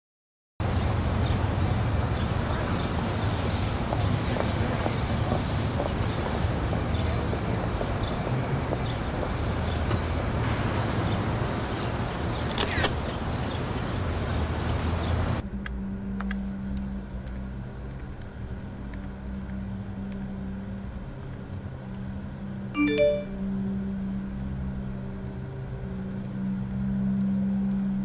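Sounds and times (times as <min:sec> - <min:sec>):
road traffic rumble: 0:00.6 - 0:22.7, 0:23.4 - 0:28.0
brief sharp high sound: 0:22.8 - 0:23.4.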